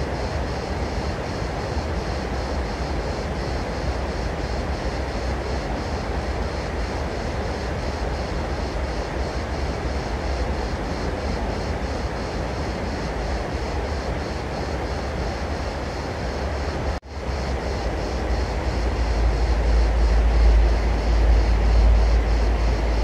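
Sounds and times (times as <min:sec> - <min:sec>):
loud background rumble: 0:00.0 - 0:23.0.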